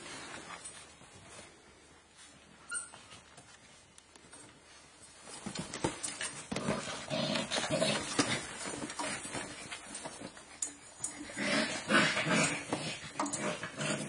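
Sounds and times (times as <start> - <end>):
puppy paws rustling: 0.0 - 11.2
puppy squeaks: 2.7 - 3.1.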